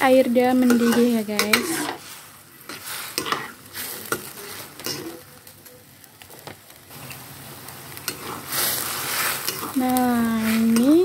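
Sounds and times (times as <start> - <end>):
sauce bubbling and sizzling: 0.0 - 11.0
metal spatula scraping a wok: 0.5 - 5.3, 8.0 - 11.0.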